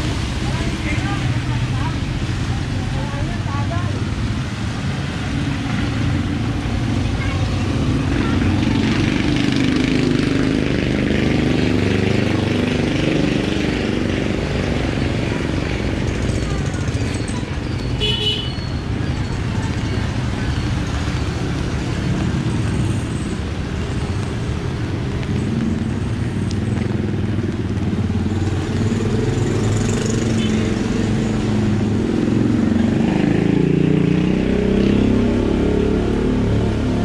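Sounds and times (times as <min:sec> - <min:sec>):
traffic engines rumbling: 0:00.0 - 0:37.0
passing vehicle engine: 0:24.5 - 0:37.0.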